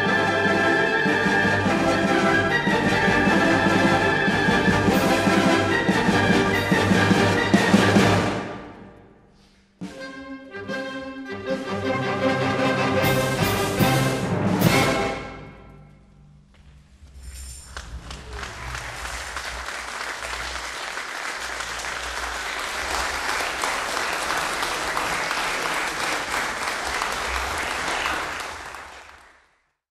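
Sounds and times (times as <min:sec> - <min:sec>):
heavy percussion strokes: 0:01.4 - 0:09.0, 0:12.9 - 0:20.6
audience applauding: 0:17.7 - 0:29.8.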